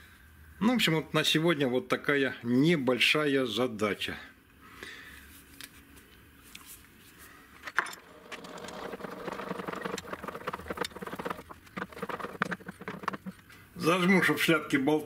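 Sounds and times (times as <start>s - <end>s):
lathe chuck clicking and rattling: 7.7s - 13.5s.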